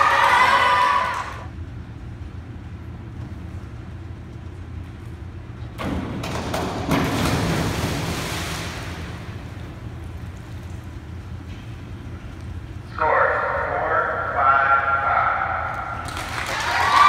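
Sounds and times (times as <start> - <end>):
diving board knocks: 5.8 - 9.2
diver splashing into pool: 6.5 - 9.4.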